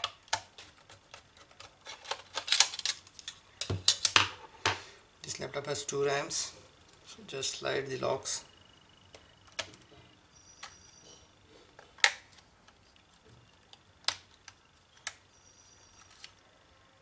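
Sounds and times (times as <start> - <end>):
memory slot clips clicking: 1.5 - 4.2.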